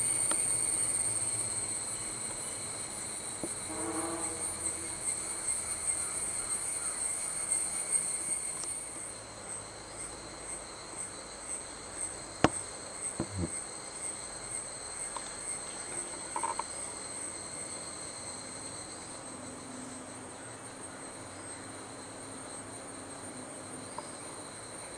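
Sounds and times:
high-pitched whine: 0.0 - 9.2.

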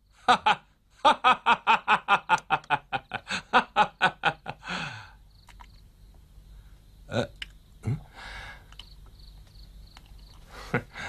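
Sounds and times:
man laughing heartily: 0.2 - 5.1, 10.5 - 11.0
breathy exhale: 8.1 - 8.7.

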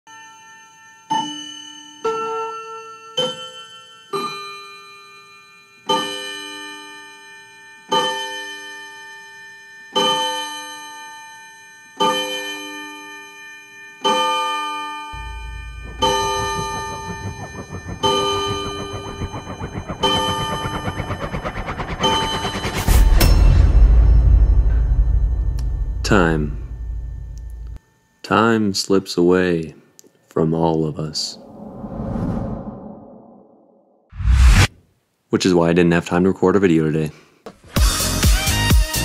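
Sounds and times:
low rumbling noise: 15.2 - 27.8, 31.2 - 34.7.

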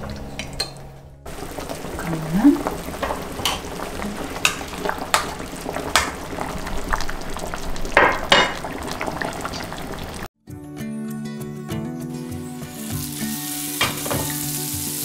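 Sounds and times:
pot boiling and bubbling: 0.0 - 10.3.

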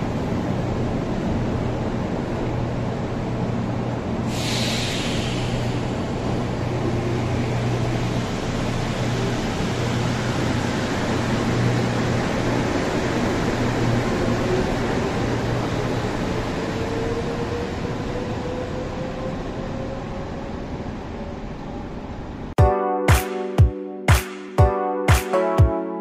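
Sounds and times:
train humming and rolling: 0.0 - 22.6
air hiss: 4.3 - 6.2.

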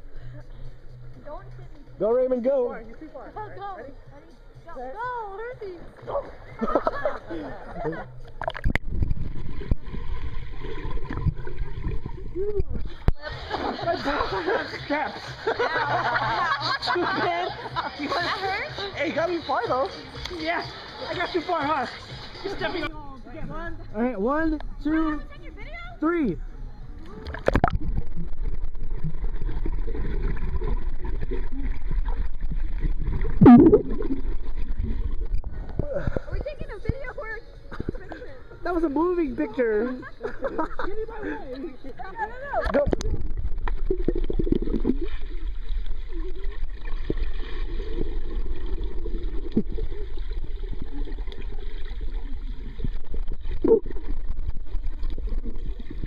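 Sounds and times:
water swish: 5.6 - 17.0, 27.2 - 56.0
underwater rumble and bubbling: 7.4 - 13.6, 27.2 - 38.6, 41.9 - 56.0
muffled underwater water rumble: 27.2 - 37.1
brief pitch-bending sound: 33.4 - 34.2.

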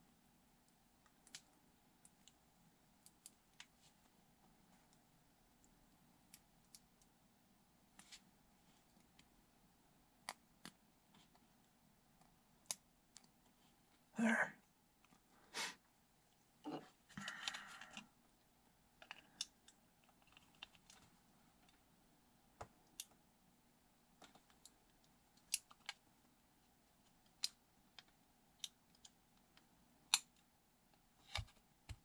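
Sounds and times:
plastic parts clicking: 24.2 - 26.0.

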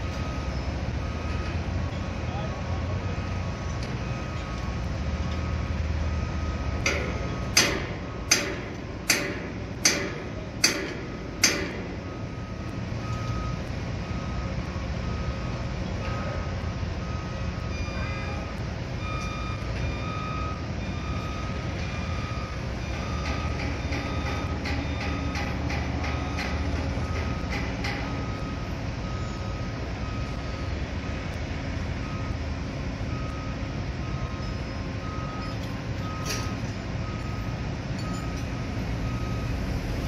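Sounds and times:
construction machinery rumbling: 0.0 - 40.0
backup alarm beeping: 3.2 - 31.3.

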